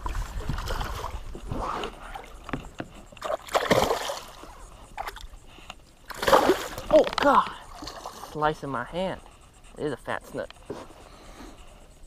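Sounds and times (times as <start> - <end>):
fish splashing at surface: 3.2 - 4.4, 6.1 - 7.2.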